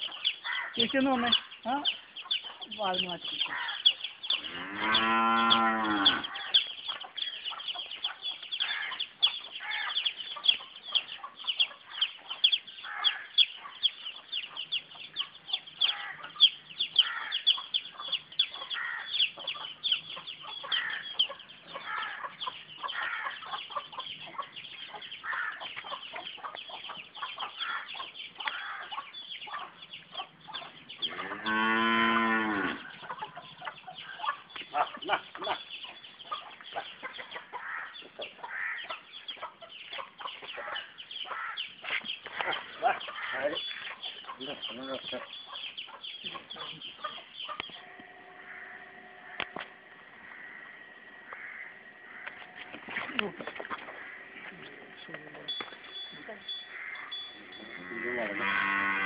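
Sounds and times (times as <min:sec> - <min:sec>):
chickens clucking: 0:00.0 - 0:59.0
cow mooing: 0:04.5 - 0:06.3, 0:31.1 - 0:32.9, 0:47.8 - 0:55.1, 0:56.4 - 0:59.0.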